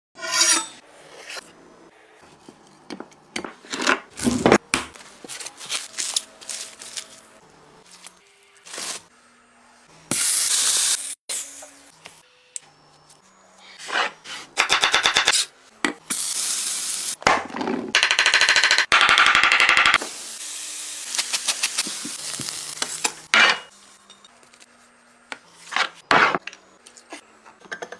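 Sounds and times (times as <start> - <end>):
meat sizzling in a pan: 20.0 - 23.1.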